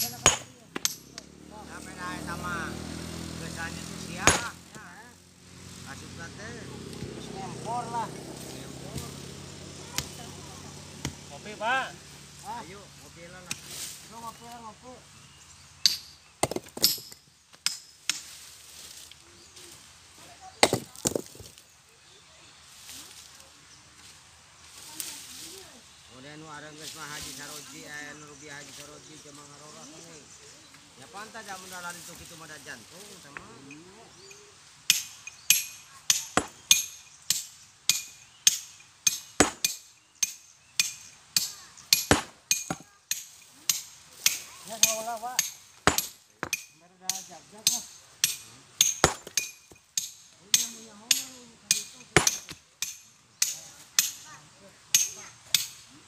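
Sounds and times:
hammer striking stone: 0.0s - 1.2s, 4.2s - 4.6s, 15.8s - 18.2s, 20.6s - 21.3s, 34.9s - 54.2s
stones knocking together: 16.4s - 17.2s, 20.6s - 21.6s, 48.9s - 49.8s.

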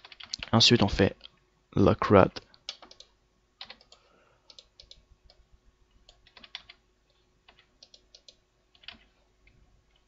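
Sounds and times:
computer keyboard keys clicking: 0.0s - 0.6s, 2.6s - 5.4s, 6.1s - 6.8s, 7.5s - 9.1s.

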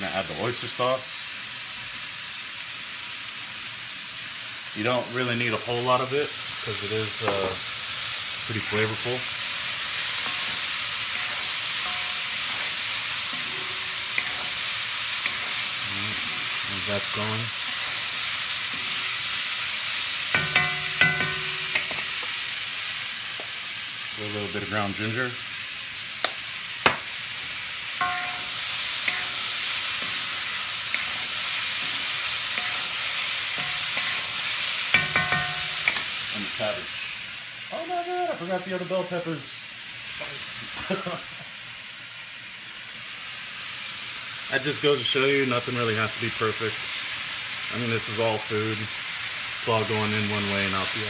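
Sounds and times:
vegetables sizzling in wok: 0.0s - 51.0s
spoon scraping and tapping pan: 13.4s - 14.6s, 20.3s - 22.4s, 28.0s - 30.3s, 30.9s - 36.1s.

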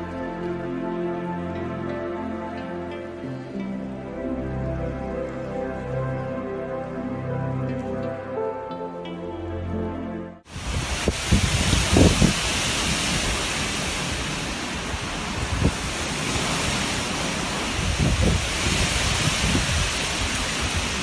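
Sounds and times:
wind rushing through trees: 10.4s - 21.0s
wind buffeting microphone: 10.5s - 21.0s.

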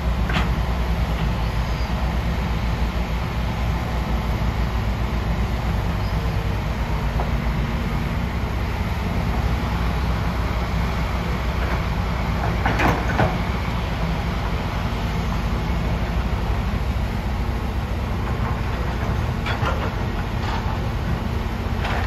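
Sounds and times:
diesel engine running: 0.0s - 22.0s.

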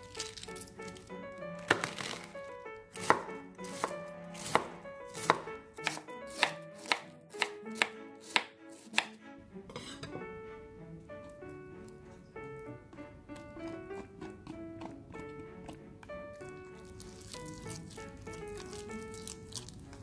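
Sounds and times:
knife chopping cabbage on board: 1.6s - 2.3s, 2.9s - 9.2s, 12.9s - 20.0s.

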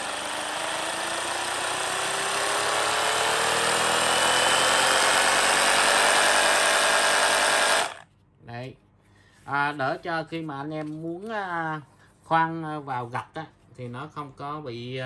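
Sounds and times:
rotary hammer running: 0.0s - 8.0s.

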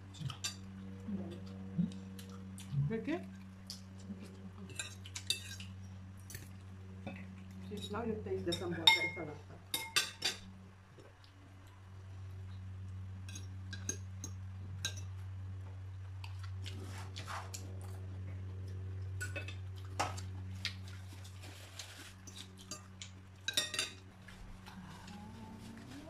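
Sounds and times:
steady low hum: 0.0s - 26.0s
cutlery clinking on plates: 8.5s - 10.4s, 23.5s - 24.0s.

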